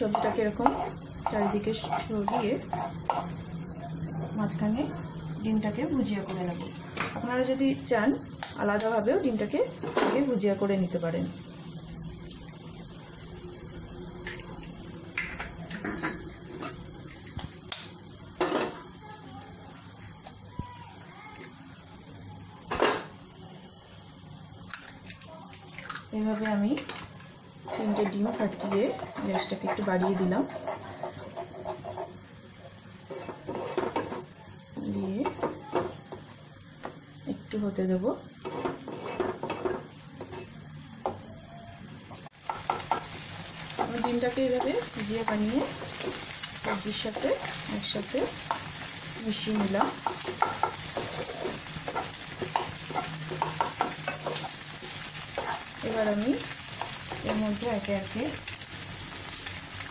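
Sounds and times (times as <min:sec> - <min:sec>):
spatula scraping a pan: 0:00.0 - 0:03.4, 0:27.6 - 0:32.2, 0:33.0 - 0:34.2, 0:38.4 - 0:40.6, 0:49.6 - 0:55.9
eggs sizzling in a pan: 0:00.0 - 0:59.9
eggs tapping and clinking on pan: 0:51.9 - 0:54.5.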